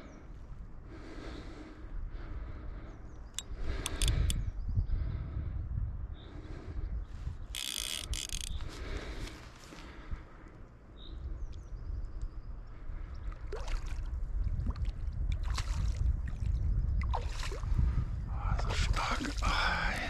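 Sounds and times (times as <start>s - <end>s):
steady low rumble: 14.0s - 20.0s.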